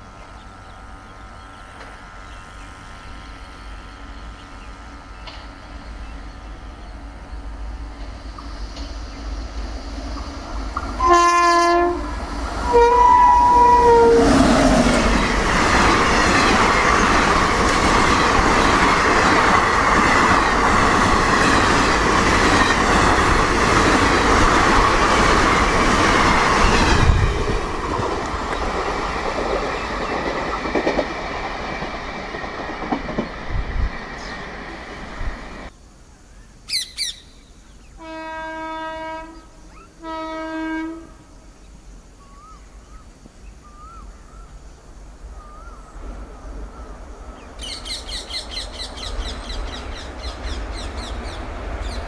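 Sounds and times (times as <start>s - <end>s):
locomotive horn blasts: 11.0s - 14.6s, 38.0s - 41.3s
train wheels clattering: 14.8s - 34.6s.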